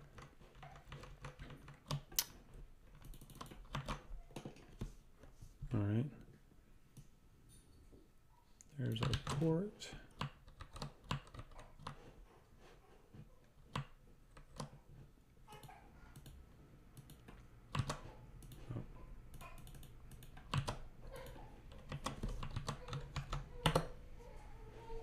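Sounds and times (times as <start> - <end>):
computer keyboard typing: 0.0 - 2.3, 2.9 - 4.1, 8.9 - 9.5, 10.1 - 12.1, 13.7 - 14.8, 15.6 - 16.4, 17.0 - 18.7, 19.3 - 24.0.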